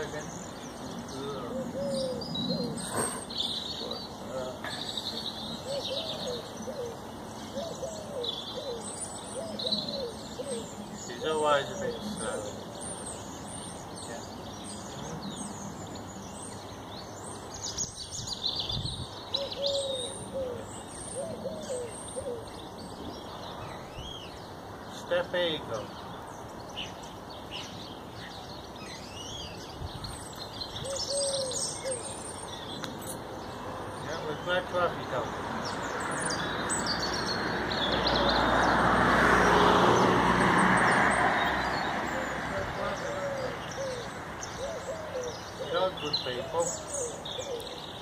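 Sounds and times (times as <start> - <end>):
small birds chirping: 0.0 - 48.0
car passing by: 33.7 - 44.6.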